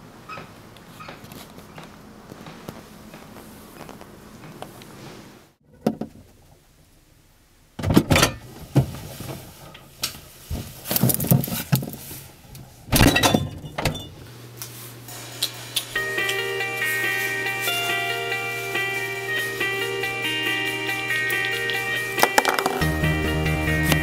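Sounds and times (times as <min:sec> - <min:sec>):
refrigerator low hum: 0:07.8 - 0:15.5.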